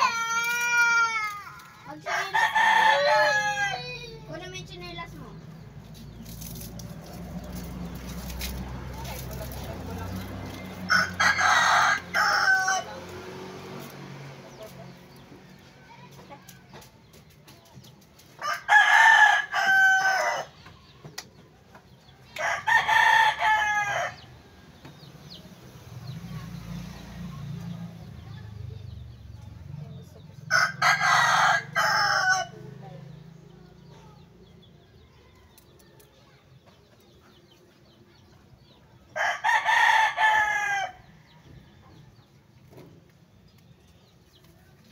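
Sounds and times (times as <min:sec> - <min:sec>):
rooster crowing: 0:02.1 - 0:04.0, 0:10.9 - 0:13.0, 0:18.4 - 0:20.5, 0:30.5 - 0:32.6.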